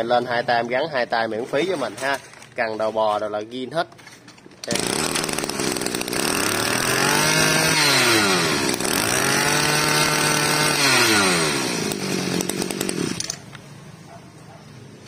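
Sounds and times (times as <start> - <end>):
brush-cutter engine revving: 4.6 - 13.5.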